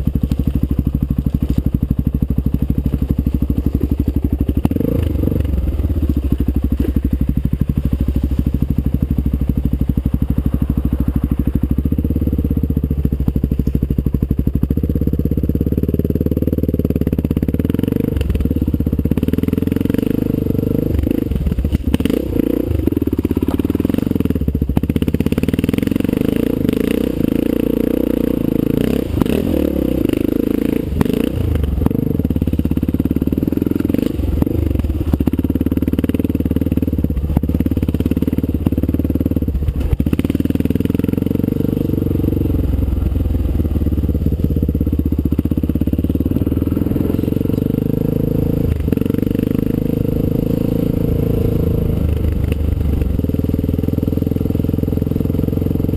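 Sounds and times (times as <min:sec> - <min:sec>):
motorcycle engine revving: 0:00.0 - 0:55.9.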